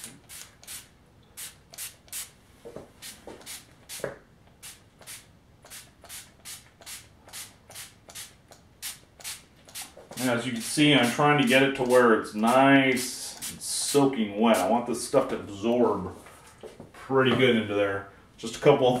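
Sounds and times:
spray can hissing spurts: 0.0 - 2.4, 3.0 - 14.0.

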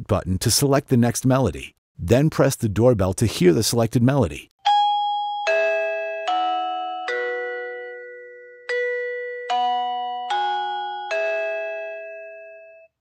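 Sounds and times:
electronic doorbell chime melody: 4.6 - 13.0.

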